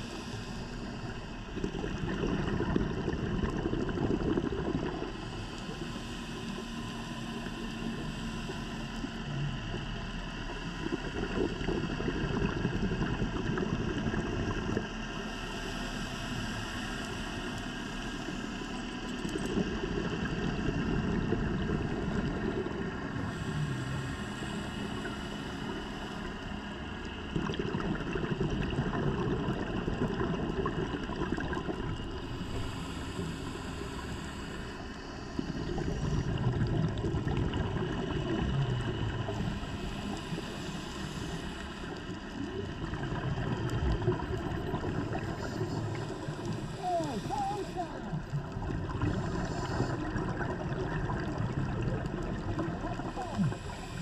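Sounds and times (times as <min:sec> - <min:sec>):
scuba regulator hissing inhale: 0:00.0 - 0:01.4, 0:23.1 - 0:26.6, 0:32.0 - 0:36.7, 0:39.3 - 0:42.4, 0:45.0 - 0:48.1, 0:49.0 - 0:50.5, 0:53.1 - 0:54.0
bubbling exhale underwater: 0:00.0 - 0:54.0.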